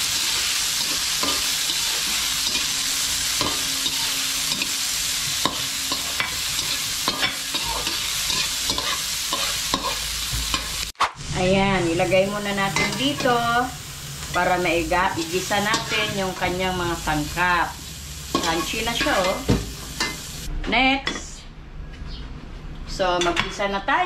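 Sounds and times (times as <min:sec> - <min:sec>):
metal turner scraping a wok: 0:00.0 - 0:10.8
beetles sizzling in hot oil: 0:00.0 - 0:20.5.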